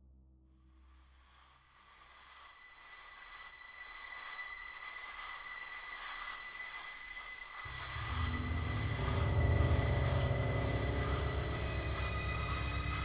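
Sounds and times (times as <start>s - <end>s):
hissing riser drone: 7.6s - 13.0s
deep rumble: 7.7s - 13.0s.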